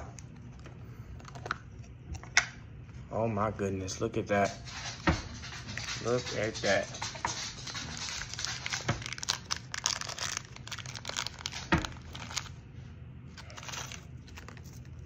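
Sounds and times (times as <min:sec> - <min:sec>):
plastic bag crinkling: 0:06.0 - 0:12.6, 0:13.3 - 0:15.0.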